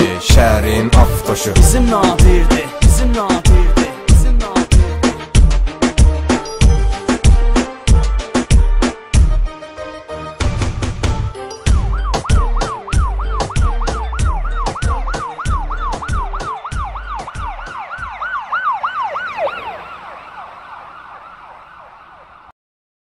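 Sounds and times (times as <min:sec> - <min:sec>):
hip-hop beat with heavy kick drums: 0:00.0 - 0:09.6, 0:10.4 - 0:18.2
falling siren wail: 0:11.6 - 0:22.5.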